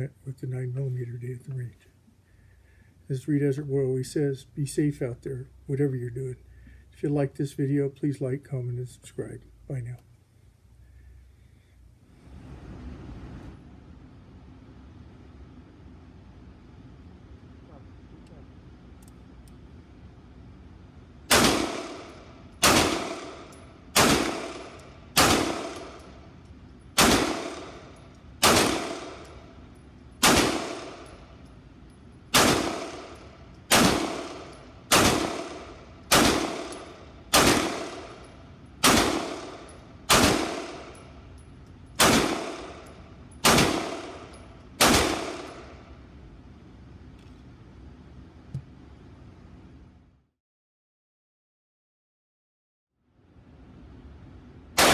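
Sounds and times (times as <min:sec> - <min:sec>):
pistol shots in indoor range: 0:13.6 - 0:49.5, 0:54.7 - 0:54.9.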